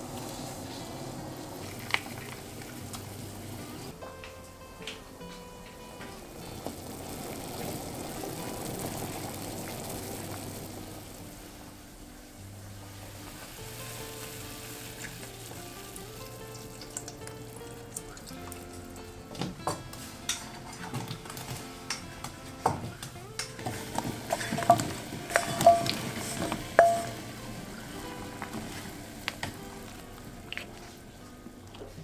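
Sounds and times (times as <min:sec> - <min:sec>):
soft background music: 0:00.0 - 0:32.0
soup boiling and bubbling: 0:00.0 - 0:32.0
wooden spoon scraping steel bowl: 0:23.6 - 0:27.2.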